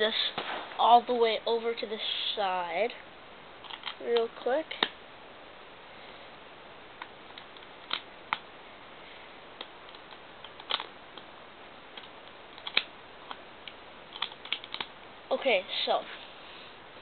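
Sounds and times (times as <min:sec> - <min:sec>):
faint hiss: 0:00.0 - 0:09.8, 0:15.0 - 0:17.0
plastic bricks clicking: 0:09.9 - 0:11.3, 0:14.1 - 0:14.9.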